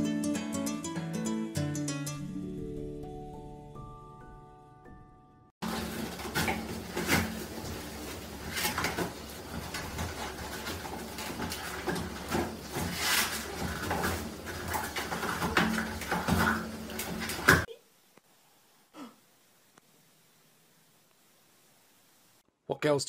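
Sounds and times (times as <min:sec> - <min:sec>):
toilet paper ripping and rustling: 0:05.6 - 0:17.7.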